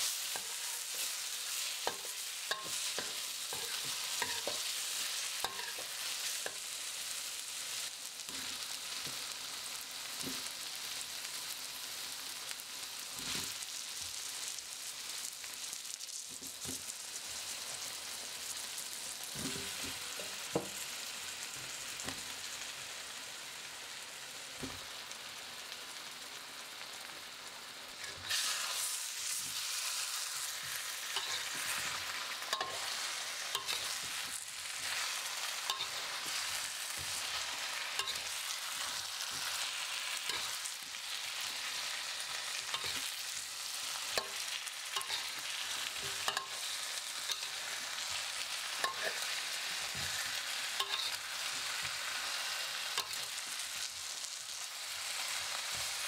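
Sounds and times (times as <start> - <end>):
stirring scrapes and clacks in wok: 0.0 - 6.7, 28.0 - 40.9, 42.2 - 43.2, 43.8 - 52.0
vegetables sizzling in oil: 0.0 - 56.0.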